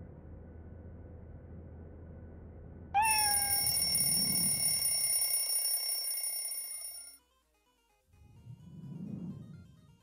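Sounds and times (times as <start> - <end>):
cartoon cat meow: 3.0 - 4.1
bright ringing alarm tone: 3.0 - 7.2.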